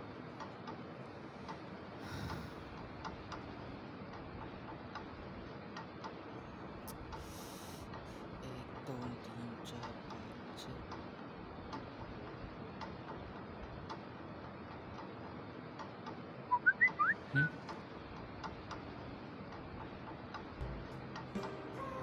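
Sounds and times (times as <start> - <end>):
clock ticking: 19.4 - 22.0.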